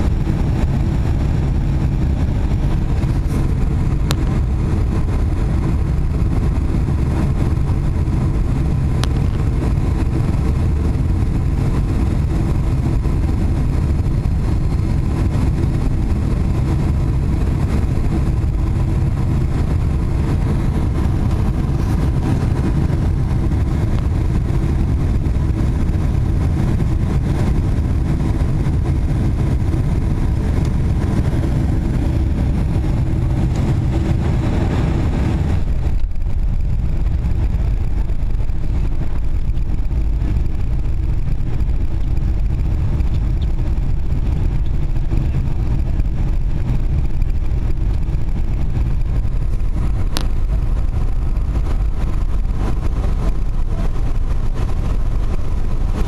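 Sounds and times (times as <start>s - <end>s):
jet engine rumble in cabin: 0.0s - 56.0s.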